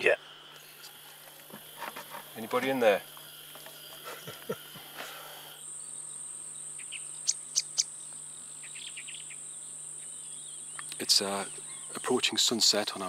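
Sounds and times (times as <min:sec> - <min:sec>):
high-pitched insect trill: 0:00.0 - 0:13.0
insect hiss: 0:00.0 - 0:13.0
bird chirps: 0:05.8 - 0:13.0.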